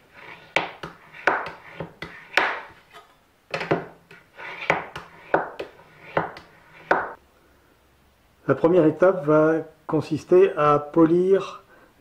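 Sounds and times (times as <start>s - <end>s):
steel scraper rubbing on abrasive paper: 0.0s - 2.8s, 4.1s - 6.9s.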